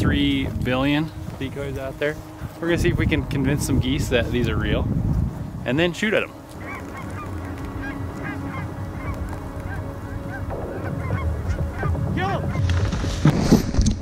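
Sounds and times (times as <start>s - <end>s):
geese honking: 0.0s - 13.3s.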